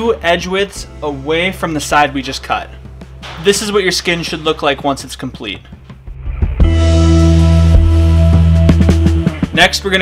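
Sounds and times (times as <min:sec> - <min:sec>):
bass-heavy held chord: 0:06.1 - 0:09.5.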